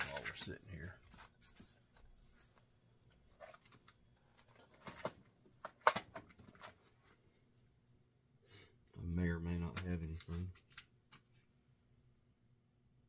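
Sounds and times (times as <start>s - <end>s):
plastic box being handled: 3.2s - 7.1s.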